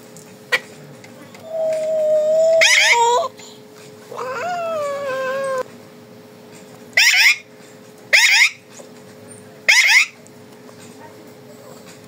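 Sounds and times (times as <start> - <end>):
parakeet screeching: 7.0 - 7.4, 8.1 - 8.6, 9.7 - 10.2.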